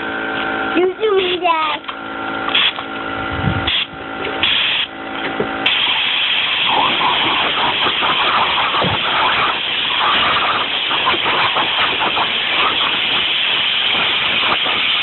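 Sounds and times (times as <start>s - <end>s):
steady hum: 0.0s - 15.0s
compressed air blasts from blow gun: 1.1s - 1.5s, 2.5s - 2.8s, 3.5s - 4.9s, 5.6s - 15.0s.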